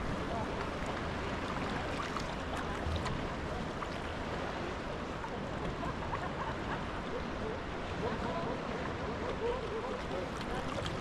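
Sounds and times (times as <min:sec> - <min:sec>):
water lapping against kayak hull: 0:00.0 - 0:05.9, 0:08.7 - 0:11.0
wind and sea rushing: 0:00.0 - 0:11.0.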